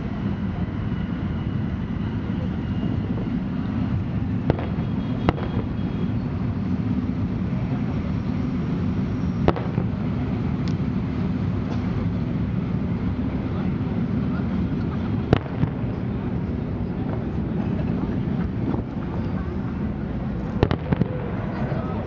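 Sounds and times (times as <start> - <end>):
crowd voices: 0.0 - 22.0
fireworks bangs: 4.4 - 6.2, 9.4 - 10.4, 15.0 - 19.6, 20.2 - 22.0.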